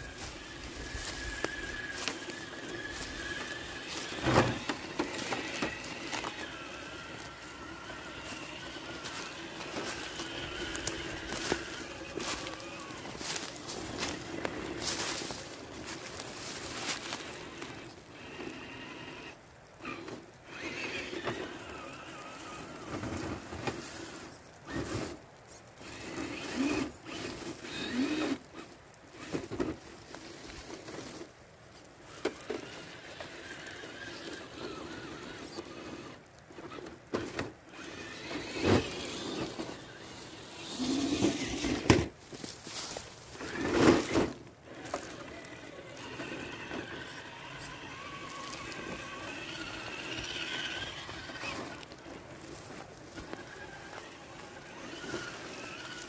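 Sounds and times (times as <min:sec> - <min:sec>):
small electric motor whining: 0:00.0 - 0:25.2, 0:25.8 - 0:31.2, 0:32.0 - 0:56.0
toy truck bumping over ground: 0:01.3 - 0:06.7, 0:32.1 - 0:42.1, 0:43.4 - 0:51.8.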